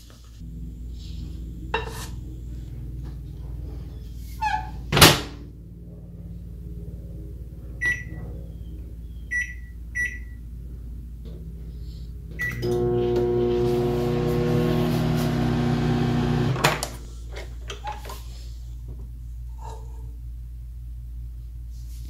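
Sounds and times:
microwave oven humming: 12.4 - 17.0.

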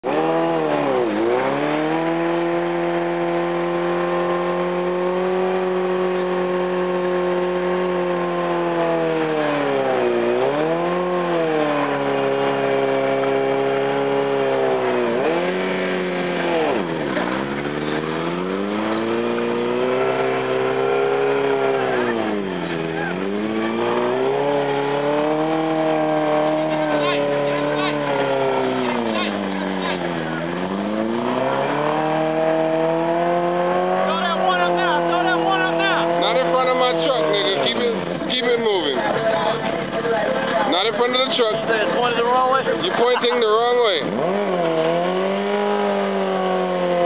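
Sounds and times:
motorcycle engine revving: 0.0 - 47.0
tire spinning on pavement: 0.0 - 47.0.

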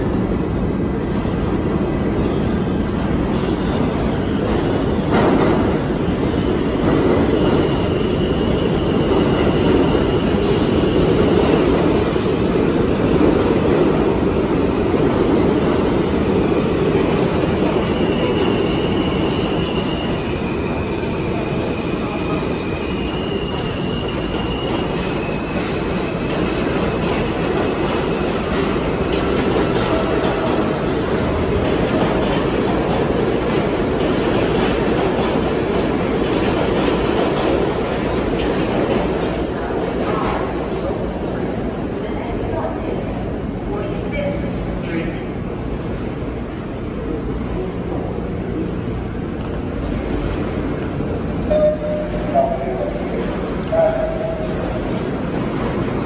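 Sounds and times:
train wheels rumbling on rails: 0.0 - 56.0.

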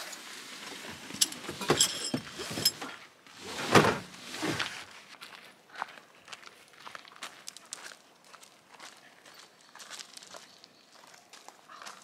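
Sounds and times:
camping gear knocks and swishes: 0.0 - 4.9.

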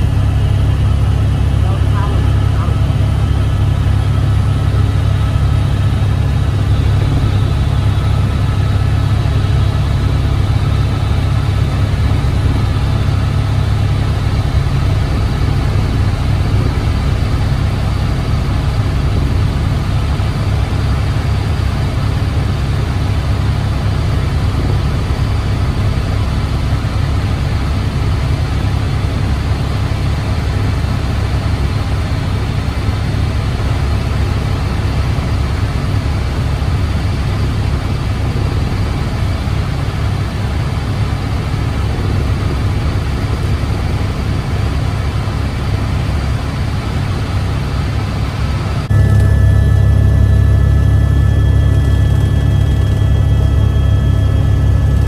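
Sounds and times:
deep engine drone: 0.0 - 55.0.

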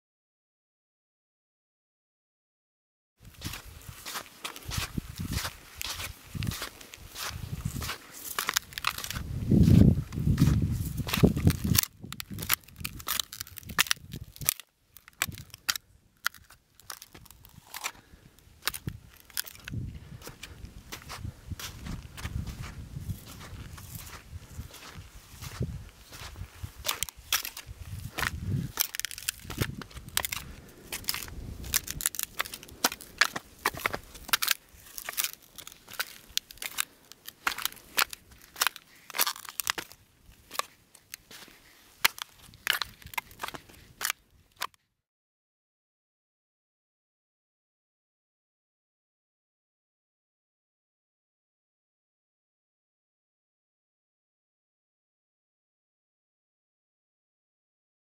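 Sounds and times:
footsteps crunching on sand: 3.2 - 44.8.

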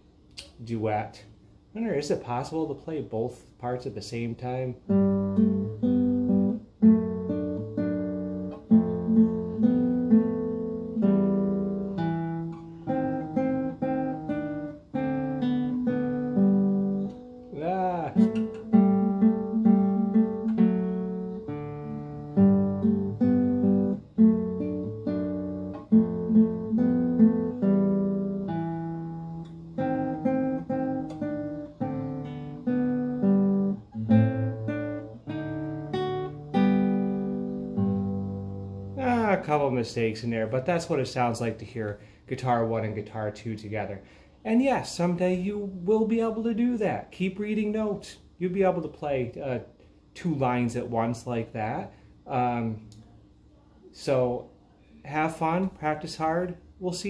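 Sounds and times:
nylon-string guitar playing: 4.8 - 41.0.

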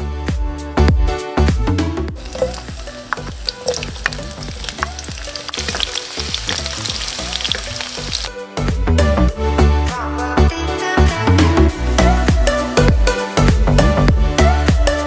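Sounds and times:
spatula scraping and tapping pan: 2.2 - 6.7
onion sizzling in hot oil: 2.2 - 8.4.

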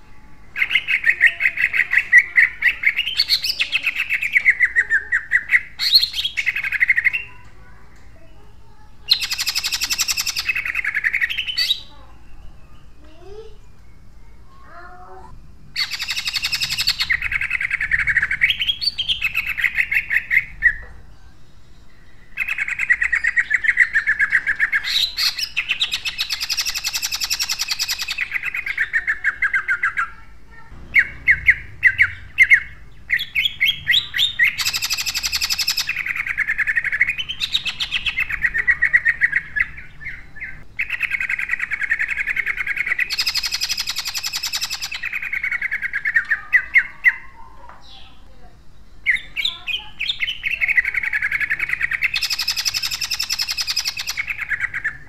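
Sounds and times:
loud sharp bird notes: 0.0 - 8.3, 9.1 - 48.2, 48.8 - 55.0
bird singing rapid harsh notes: 0.0 - 55.0.

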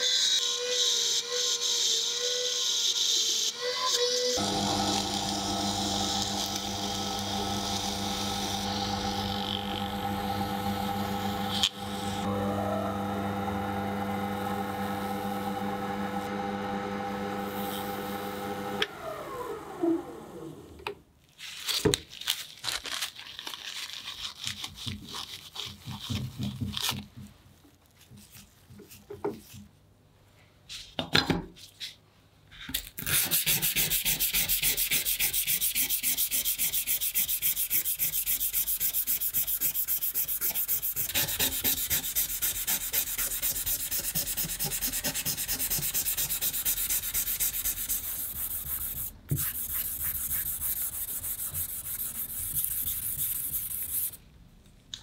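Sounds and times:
electric motor humming: 4.4 - 19.5
rapid rhythmic sanding: 33.7 - 54.2.

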